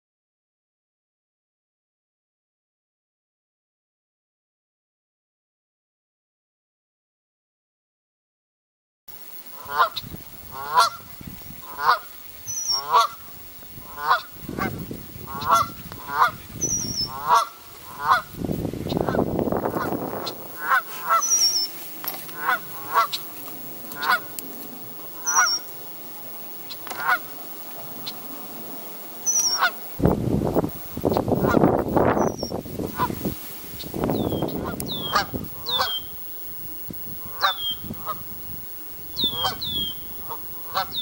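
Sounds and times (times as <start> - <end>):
geese honking: 9.5 - 25.9, 26.6 - 28.4, 29.2 - 29.8, 31.1 - 36.4, 37.2 - 38.3, 38.9 - 41.0.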